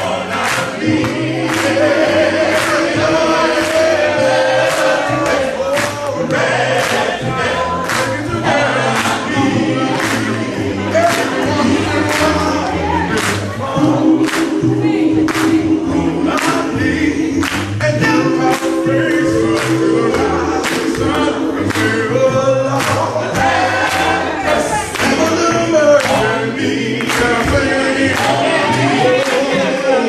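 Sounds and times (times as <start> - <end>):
male vocal group singing gospel: 0.0 - 30.0
sharp beat: 17.9 - 24.1.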